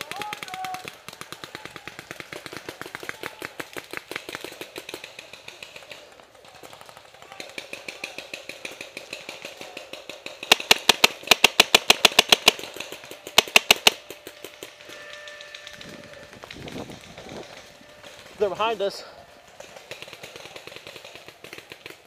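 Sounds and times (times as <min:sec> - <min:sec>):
paintball markers firing: 0:00.0 - 0:22.0
close marker firing rapid shots: 0:07.4 - 0:14.8, 0:19.6 - 0:22.0.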